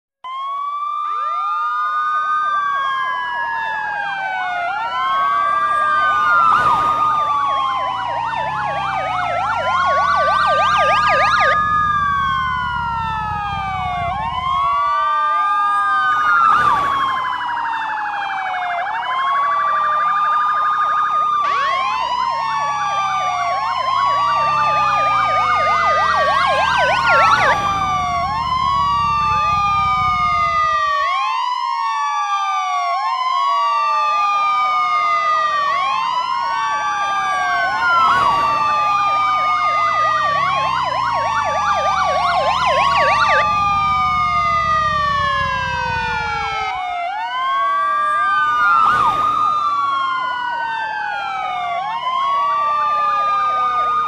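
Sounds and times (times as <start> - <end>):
police siren wailing: 0.2 - 54.0.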